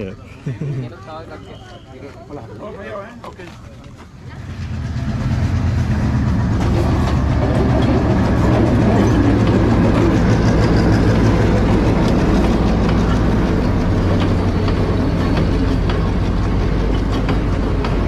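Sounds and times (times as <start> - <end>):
wheels clicking on rails: 3.2 - 18.0
diesel locomotive engine drone: 4.0 - 18.0.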